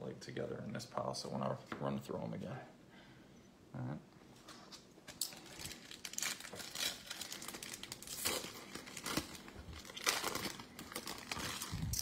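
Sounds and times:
wrapper crinkling and tearing: 0:05.1 - 0:12.0.

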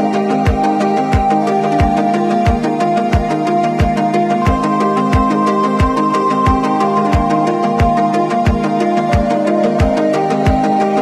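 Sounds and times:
held synth tones: 0:04.4 - 0:09.0.

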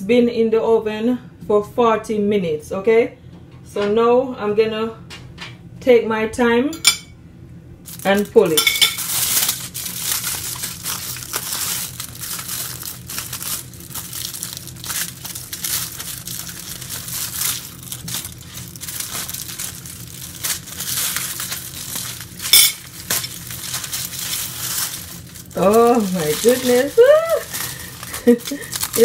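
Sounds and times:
aluminium foil crinkling: 0:07.8 - 0:29.0.

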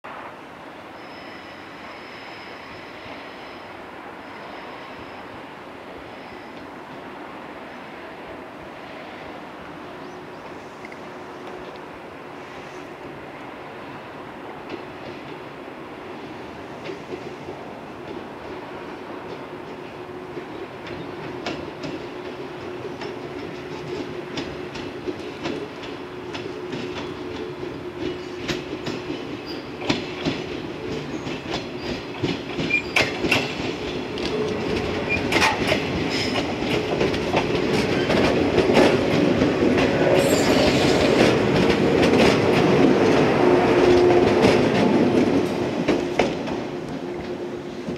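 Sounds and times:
train passing close by: 0:00.1 - 0:47.9
wheels clicking over rail joints: 0:20.4 - 0:47.9.

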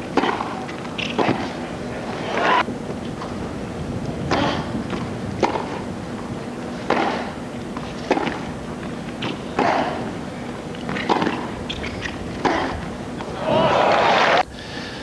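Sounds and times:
racket hitting tennis ball: 0:00.1 - 0:01.6, 0:04.3 - 0:05.9, 0:06.7 - 0:10.1, 0:10.8 - 0:12.9
crowd noise: 0:12.6 - 0:14.5.

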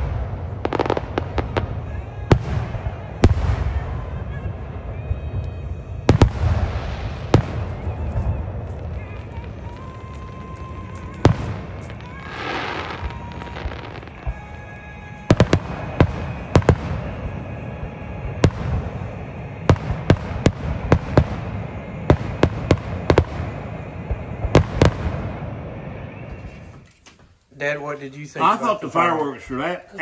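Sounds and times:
fireworks cracks and bangs: 0:00.0 - 0:26.9
fireworks hiss: 0:05.8 - 0:27.0.

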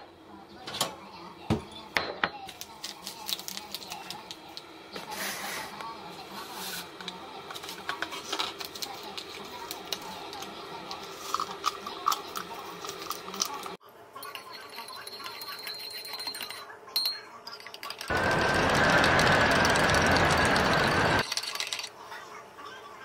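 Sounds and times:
loud rushing noise with whine: 0:18.1 - 0:21.2.

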